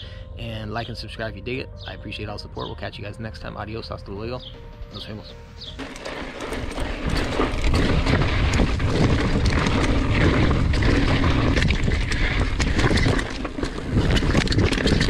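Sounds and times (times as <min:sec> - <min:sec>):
stones and bike rattling: 0:01.9 - 0:15.0
bike tyres rolling on rocky trail: 0:05.0 - 0:15.0
wind buffeting microphone: 0:05.7 - 0:15.0.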